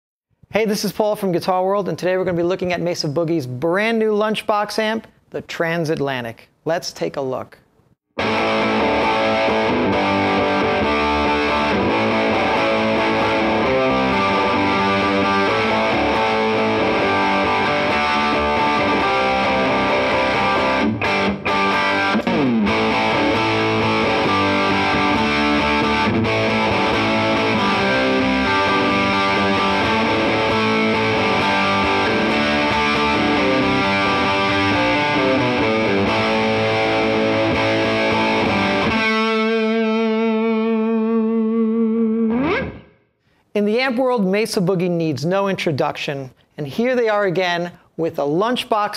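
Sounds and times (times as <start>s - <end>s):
overdriven electric guitar rock riff: 8.2s - 43.4s.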